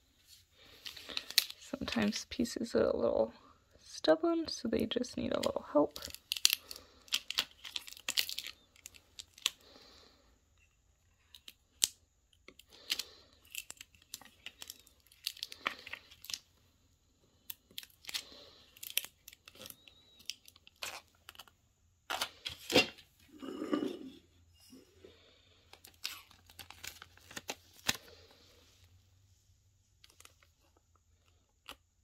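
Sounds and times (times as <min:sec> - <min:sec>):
transfer tape peeling crackly tearing: 0:06.0 - 0:09.6, 0:12.6 - 0:16.4, 0:17.6 - 0:21.5.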